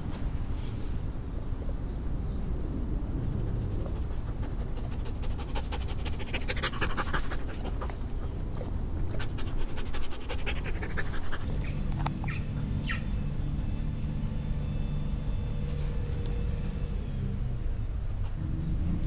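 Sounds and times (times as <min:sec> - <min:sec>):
low steady hum: 0:00.0 - 0:19.0
dog panting rapidly: 0:03.6 - 0:12.3.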